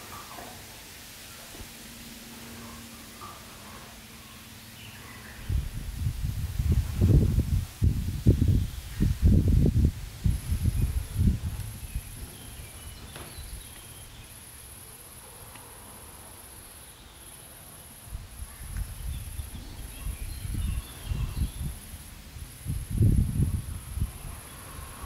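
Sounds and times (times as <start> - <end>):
insect high buzz: 0.0 - 25.0
low rumbles: 5.2 - 14.4.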